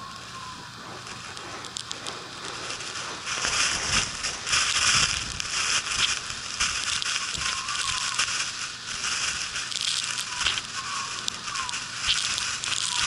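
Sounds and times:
blizzard wind gusting: 0:00.0 - 0:13.0
wind rumble on microphone: 0:00.0 - 0:13.0.

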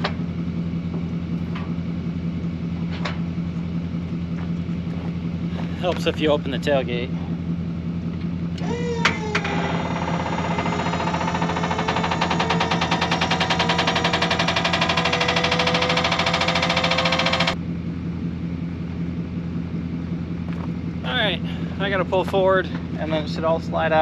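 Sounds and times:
truck engine idling: 0:00.0 - 0:24.0
hydraulic hoist whine: 0:08.5 - 0:17.6.

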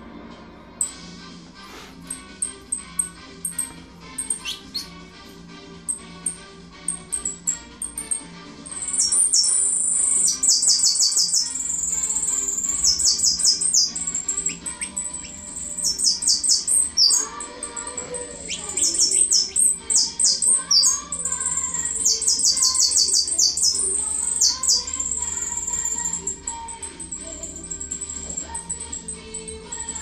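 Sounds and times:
faint music: 0:00.0 - 0:30.0
songbird singing: 0:02.4 - 0:05.0, 0:05.9 - 0:30.0.

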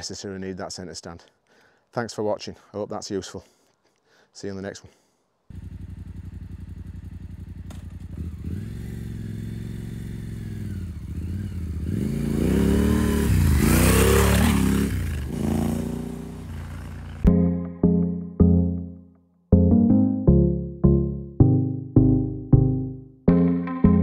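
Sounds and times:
motorcycle engine revving: 0:05.5 - 0:17.3.

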